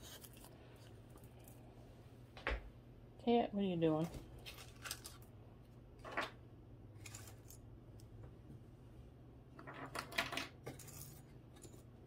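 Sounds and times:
small objects scraping and rustling: 4.4s - 5.3s, 7.0s - 7.7s, 9.6s - 11.9s.

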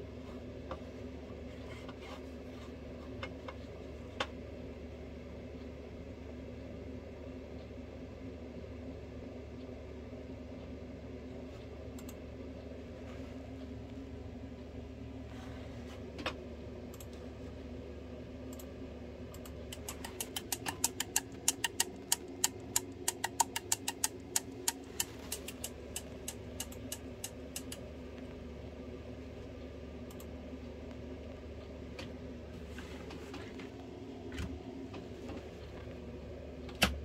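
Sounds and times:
steady low hum: 0.0s - 37.0s
solenoid valve clicking rapidly: 19.4s - 27.8s.

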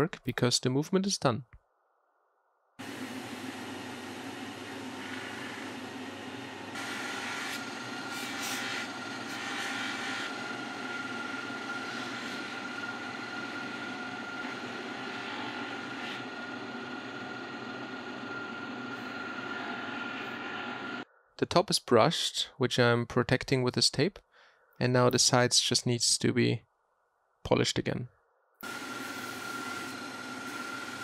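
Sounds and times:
scratchy polishing noise: 2.8s - 17.2s, 28.7s - 31.0s
polishing motor whine: 2.8s - 21.0s, 28.6s - 31.0s.

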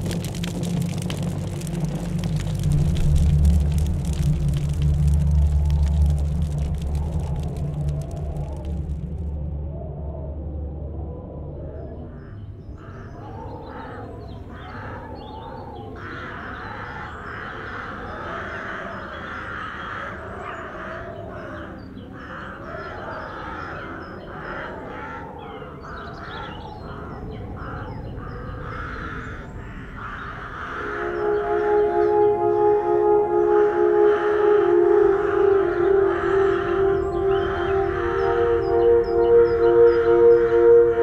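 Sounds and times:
low steady rumble: 0.0s - 12.8s
crows cawing: 12.8s - 32.1s, 33.8s - 40.0s.

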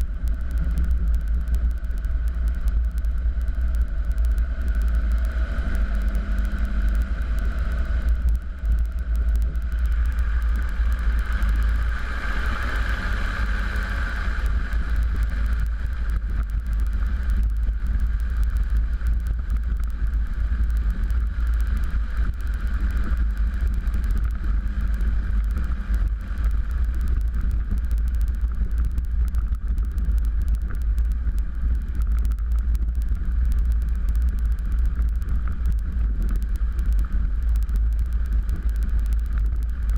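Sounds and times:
piston aircraft engine rumble: 0.0s - 39.9s.

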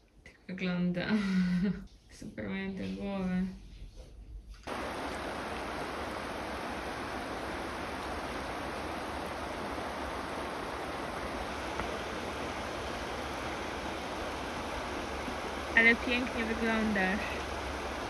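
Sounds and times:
river running over stones: 4.7s - 18.0s.

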